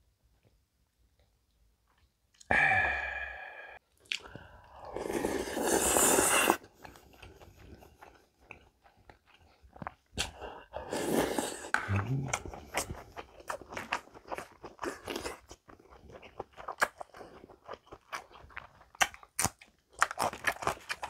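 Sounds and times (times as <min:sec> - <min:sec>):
person exhaling loudly: 0:02.5 - 0:03.8
wet slurp from spoon: 0:04.1 - 0:06.7, 0:10.2 - 0:11.7.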